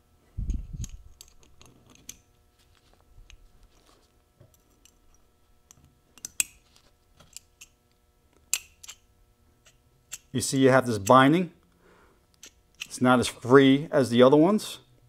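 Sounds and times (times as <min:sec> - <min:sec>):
small metal clicks and taps: 0:05.7 - 0:06.6.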